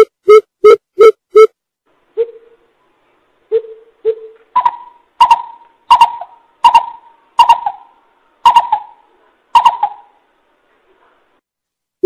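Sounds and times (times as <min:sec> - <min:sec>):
bird hooting: 0:03.5 - 0:09.0, 0:09.6 - 0:10.2.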